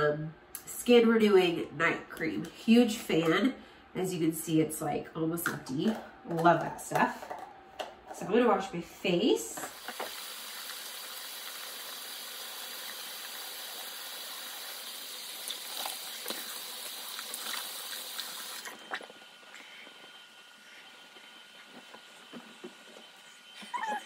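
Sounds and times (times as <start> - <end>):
tap running: 9.6 - 23.4.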